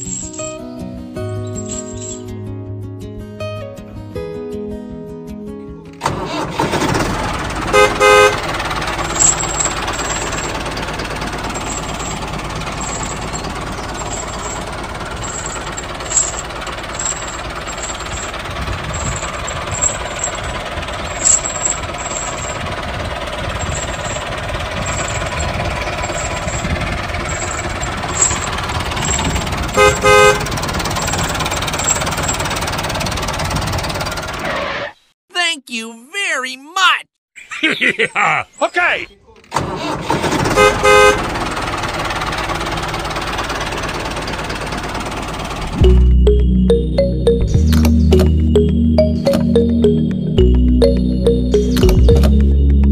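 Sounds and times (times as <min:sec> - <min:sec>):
small vehicle motor running: 0:06.0 - 0:34.5
short horn beeps: 0:29.7 - 0:30.5.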